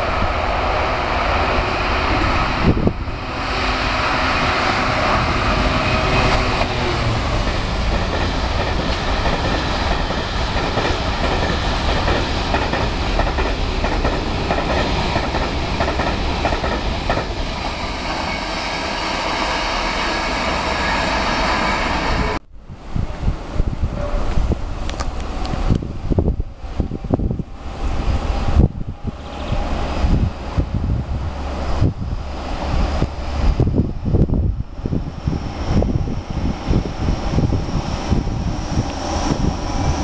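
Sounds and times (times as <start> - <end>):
train wagon wheels rumbling: 1.4 - 22.4.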